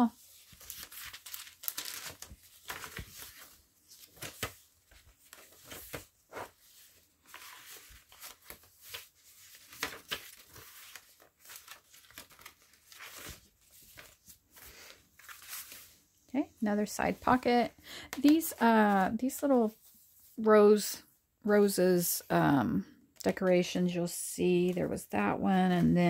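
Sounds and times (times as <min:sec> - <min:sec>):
paper pages turning: 0:00.2 - 0:16.0.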